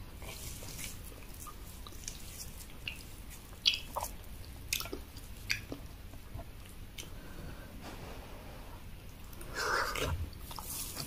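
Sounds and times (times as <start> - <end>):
wet chewing: 0.2 - 7.1.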